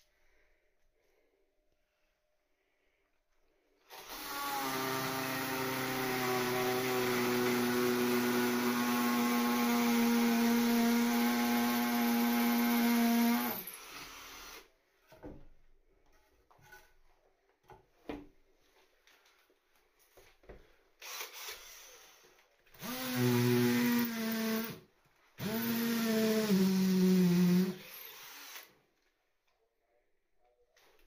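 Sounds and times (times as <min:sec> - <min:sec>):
cordless drill motor running: 0:03.9 - 0:14.7, 0:21.0 - 0:24.8, 0:25.4 - 0:28.7.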